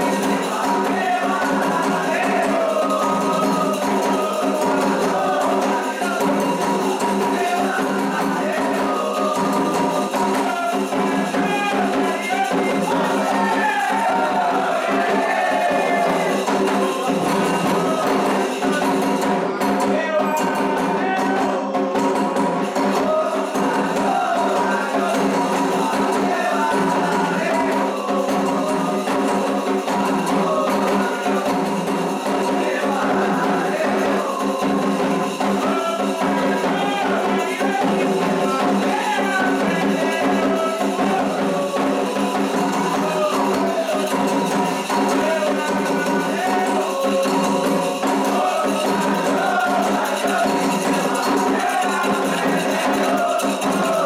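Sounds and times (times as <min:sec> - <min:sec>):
group singing: 0:00.0 - 0:54.0
hand drums: 0:00.0 - 0:54.0
sharp percussive strokes: 0:00.0 - 0:54.0
struck bell: 0:16.0 - 0:54.0.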